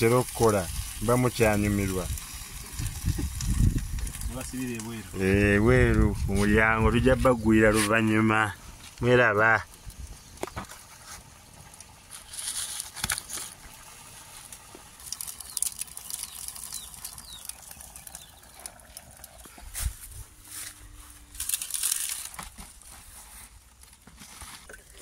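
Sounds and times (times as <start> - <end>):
leaves rustling and crinkling: 0.0 - 25.0.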